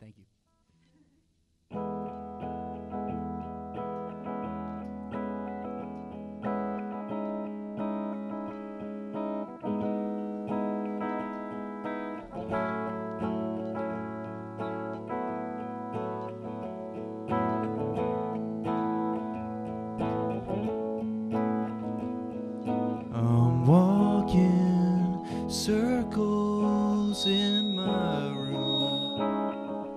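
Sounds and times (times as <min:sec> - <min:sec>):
clean electric guitar: 0:00.6 - 0:29.9
rock band playing live: 0:25.4 - 0:29.9.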